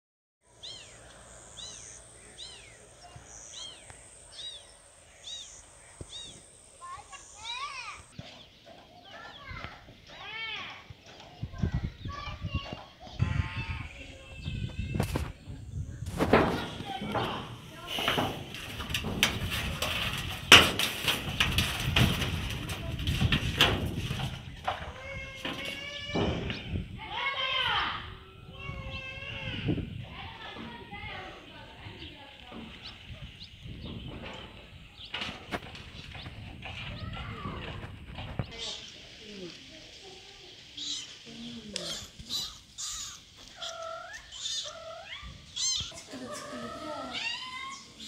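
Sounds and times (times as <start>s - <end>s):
scuffs and knocks on metal roof: 16.1s - 26.8s, 32.5s - 38.4s
kitten meowing: 42.0s - 46.0s.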